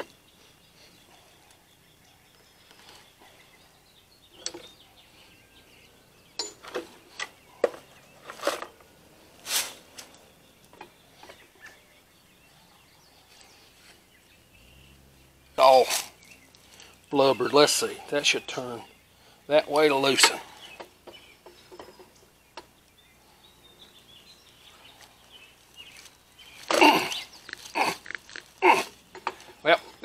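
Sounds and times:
metal wrenches clinking: 0:06.4 - 0:08.8, 0:20.0 - 0:20.5.

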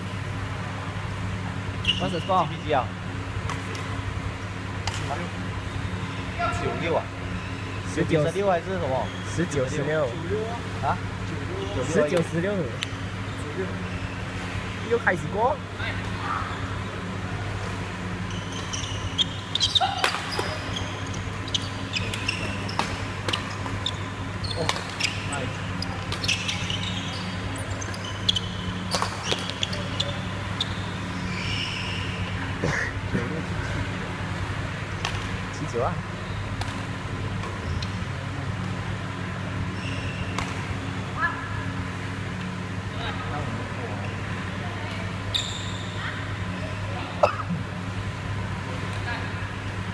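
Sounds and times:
steady low hum: 0:00.0 - 0:49.9
shoes squeaking on court: 0:01.7 - 0:02.4, 0:08.7 - 0:10.3, 0:16.0 - 0:32.5, 0:34.4 - 0:40.9, 0:45.2 - 0:46.6
rackets hitting shuttlecock: 0:03.4 - 0:04.0, 0:04.8 - 0:05.1, 0:19.6 - 0:23.9, 0:24.6 - 0:26.6, 0:28.7 - 0:29.8, 0:34.9 - 0:35.4, 0:36.5 - 0:37.9, 0:40.3 - 0:40.8.

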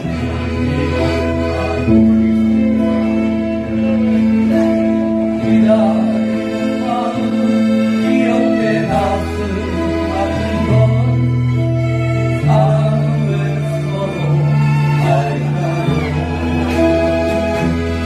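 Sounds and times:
accordion holding long chords: 0:00.0 - 0:18.0
strummed acoustic guitars: 0:00.0 - 0:18.0
violin: 0:00.0 - 0:18.0
two men singing a duet: 0:05.1 - 0:11.7, 0:12.3 - 0:17.3.

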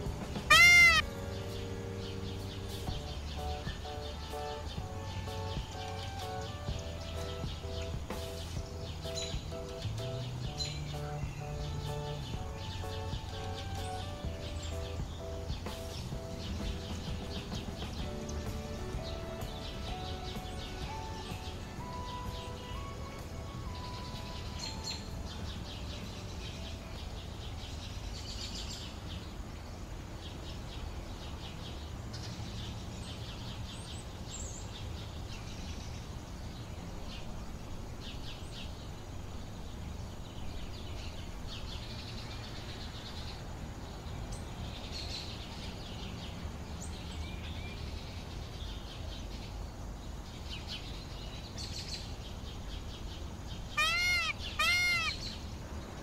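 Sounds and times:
low outdoor rumble: 0:00.0 - 0:56.0
small birds chirping: 0:00.0 - 0:56.0.

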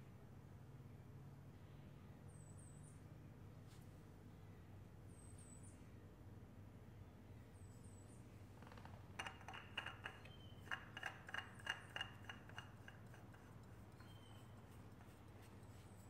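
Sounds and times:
low steady hum: 0:00.0 - 0:16.0
oil filter clicks and scrapes: 0:08.6 - 0:16.0.

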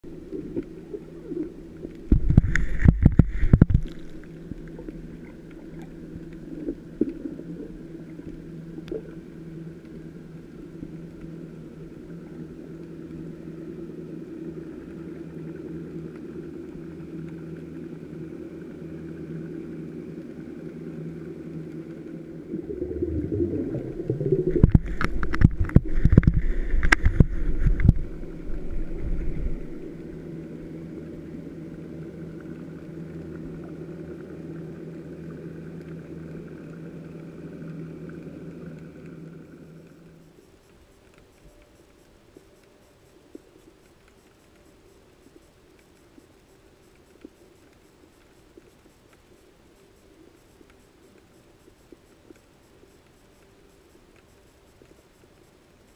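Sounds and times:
underwater boat engine hum: 0:00.0 - 0:53.7
sharp knocks and crackles: 0:01.9 - 0:04.3, 0:22.8 - 0:29.8.

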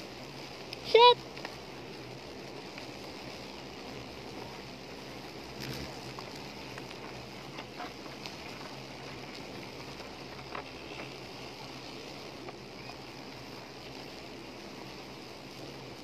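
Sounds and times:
beetles buzzing drone: 0:00.0 - 0:16.0
light ticks and taps: 0:00.7 - 0:01.6.

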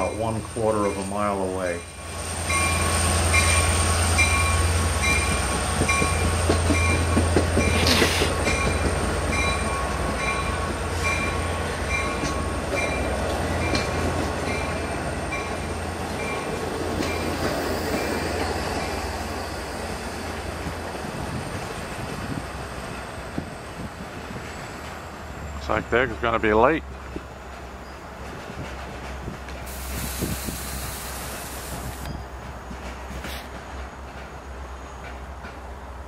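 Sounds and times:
train rumble: 0:00.0 - 0:36.0
steel wheels clattering on rails: 0:02.5 - 0:19.2, 0:26.9 - 0:35.8
brief hiss: 0:07.8 - 0:08.4, 0:29.7 - 0:32.1.

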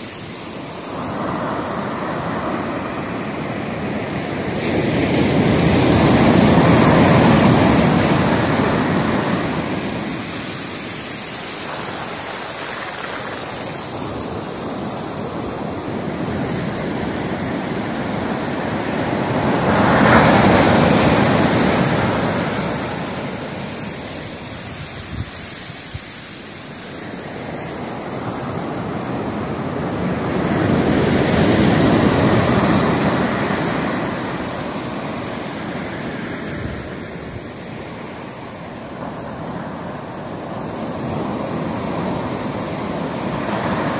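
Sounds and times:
waves crashing on beach: 0:00.0 - 0:43.9
hiss of water: 0:07.9 - 0:16.0, 0:20.3 - 0:29.1.

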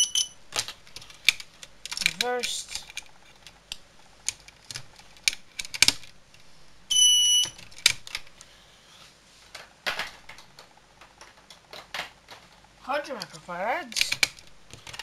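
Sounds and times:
alarm horn beep: 0:00.0 - 0:00.4, 0:06.9 - 0:07.6
plastic parts clicking and snapping: 0:00.2 - 0:06.4, 0:07.4 - 0:08.5, 0:09.5 - 0:12.6, 0:13.2 - 0:15.0.

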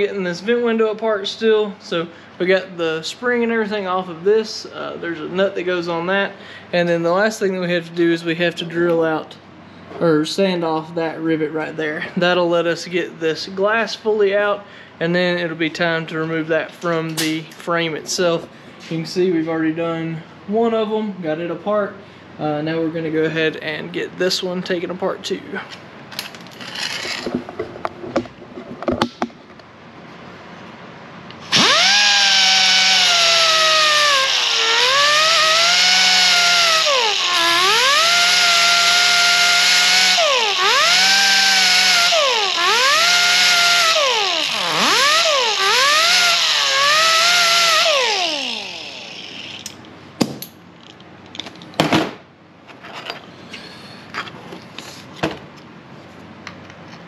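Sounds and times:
air sander grinding metal: 0:31.4 - 0:49.8.

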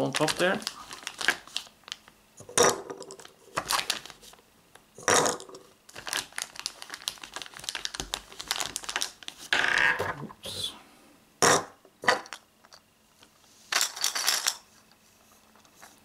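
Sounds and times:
plastic bag crinkling: 0:00.0 - 0:02.1, 0:03.1 - 0:04.4, 0:05.3 - 0:09.5.

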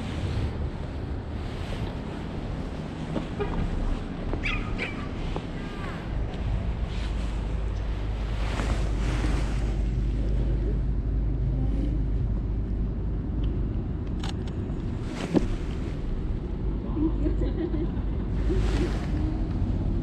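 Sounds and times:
clothing rubbing on microphone: 0:00.0 - 0:10.9, 0:15.0 - 0:16.2, 0:18.4 - 0:19.5
wind rumble on microphone: 0:00.0 - 0:20.0.

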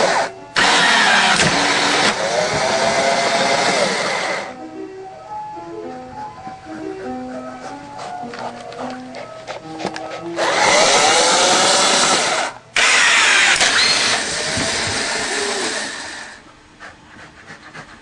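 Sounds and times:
power tool whirring: 0:00.0 - 0:04.5, 0:10.4 - 0:16.4
background music: 0:00.0 - 0:13.6.

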